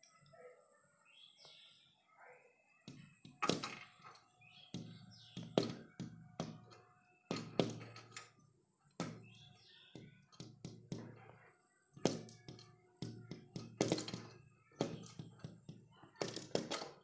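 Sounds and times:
sharp taps and thunks: 0:04.7 - 0:08.0, 0:09.0 - 0:11.2, 0:12.0 - 0:17.0.

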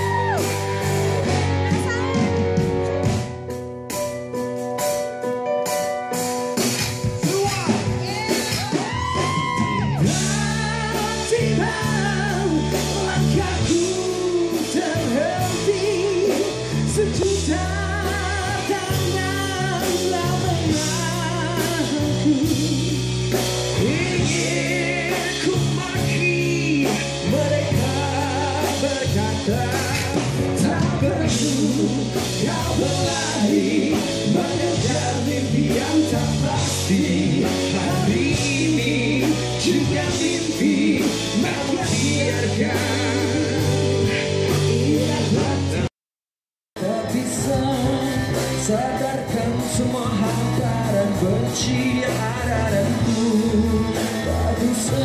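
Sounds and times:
steady drum beat: 0:00.0 - 0:05.0, 0:05.7 - 0:45.9
electric guitar: 0:00.0 - 0:45.9
man singing: 0:07.0 - 0:46.0, 0:46.8 - 0:55.0.

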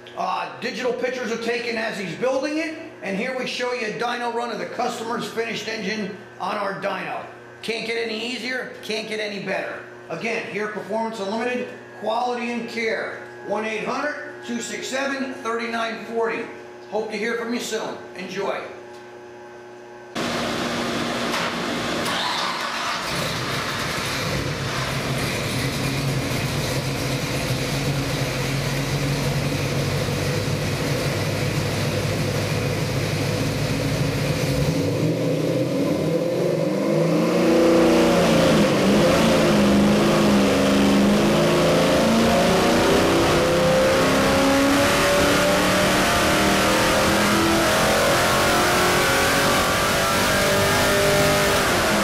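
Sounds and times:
engine idling then revving up: 0:20.2 - 0:44.8.

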